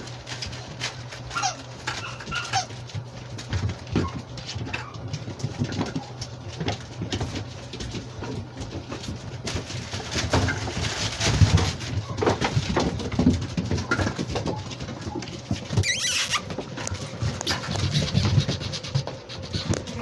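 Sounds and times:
clicks and knocks on tiled floor: 0:00.0 - 0:20.0
puppies yipping and whining: 0:01.0 - 0:06.2, 0:13.7 - 0:20.0.

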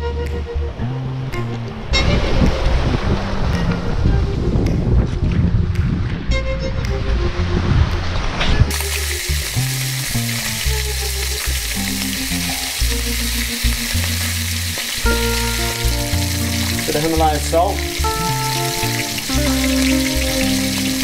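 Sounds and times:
slow low background music: 0:00.0 - 0:21.0
fish sizzling in hot oil: 0:08.7 - 0:21.0.

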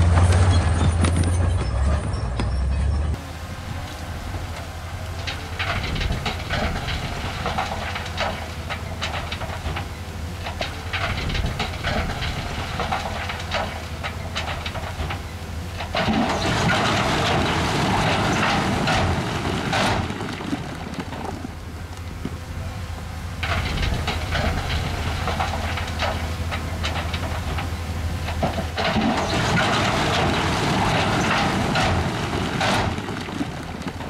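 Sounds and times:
diesel engine hum: 0:00.0 - 0:34.0
rock clanks and knocks: 0:05.2 - 0:21.5, 0:23.4 - 0:34.0.

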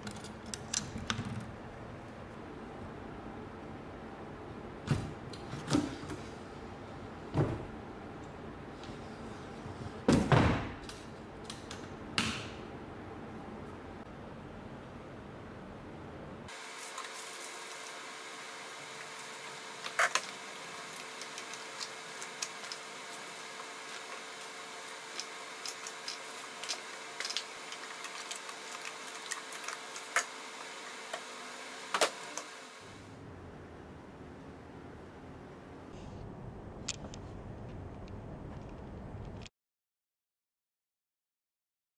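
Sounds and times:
wooden cabinet knocks and clunks: 0:10.1 - 0:10.8.

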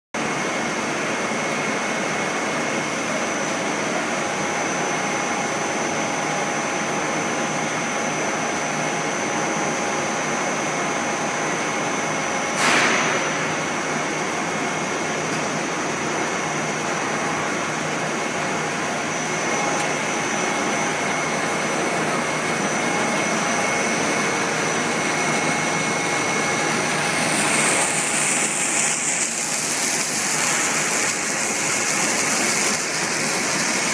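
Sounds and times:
extruder machine droning: 0:00.2 - 0:33.9
high-pitched machine whine: 0:00.2 - 0:33.9
sharp knock: 0:12.6 - 0:13.6
steam hissing: 0:22.5 - 0:33.9.

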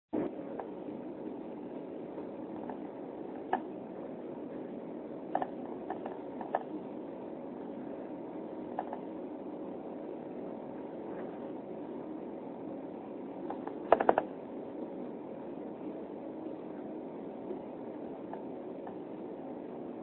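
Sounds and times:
airliner cabin engine hum: 0:00.1 - 0:20.0
sharp clicks: 0:13.5 - 0:14.3.

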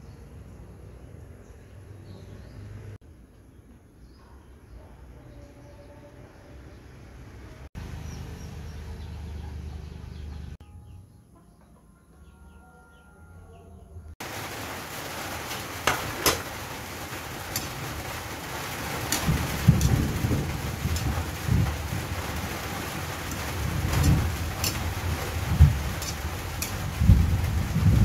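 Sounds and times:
faint outdoor ambience: 0:00.0 - 0:28.0
vegetables sizzling in a wok: 0:14.2 - 0:28.0
metal spatula scraping pan: 0:23.2 - 0:26.9.

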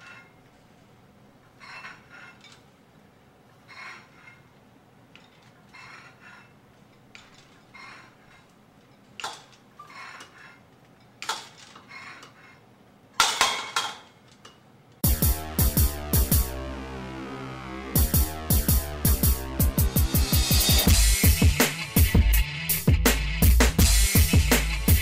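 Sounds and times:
metal weight plates clinking: 0:00.0 - 0:00.4, 0:01.6 - 0:02.7
electronic music with heavy beat: 0:15.0 - 0:25.0.

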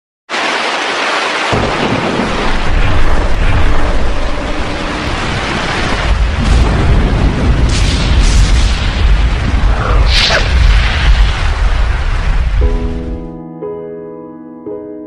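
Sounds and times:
deep booming rumble: 0:01.5 - 0:13.2
loud hiss: 0:07.7 - 0:12.4
short whooshes: 0:09.7 - 0:11.6.

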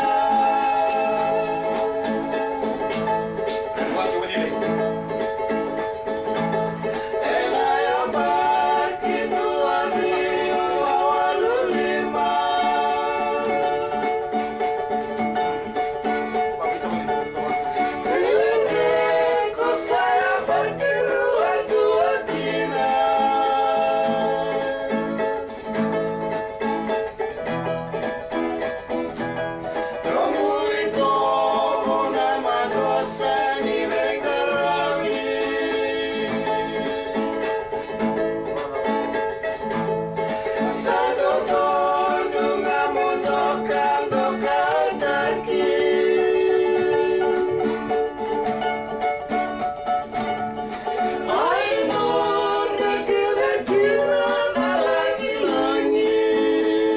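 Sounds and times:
men singing together: 0:00.0 - 0:02.9, 0:06.9 - 0:14.7, 0:17.5 - 0:25.5, 0:29.7 - 0:37.7, 0:40.3 - 0:48.1, 0:50.8 - 0:56.9
plucked bass notes: 0:00.0 - 0:56.9
strummed acoustic guitar: 0:00.0 - 0:56.9.

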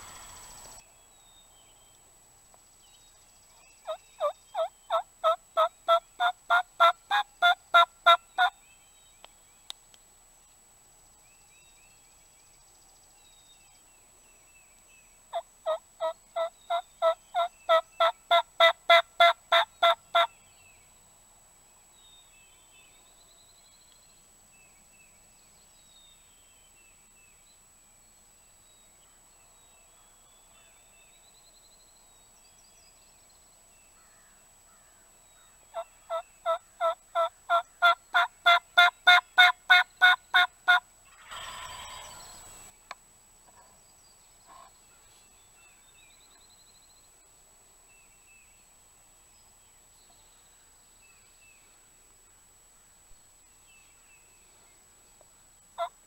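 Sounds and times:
faint songbirds chirping: 0:00.0 - 0:56.0
turkey call yelps: 0:04.2 - 0:08.5.

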